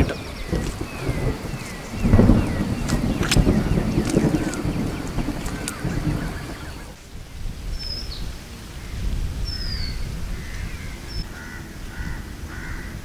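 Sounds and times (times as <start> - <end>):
birds whistling downward: 0.0 - 7.0
lower bird calls: 0.0 - 7.0
wind on microphone: 0.0 - 13.0.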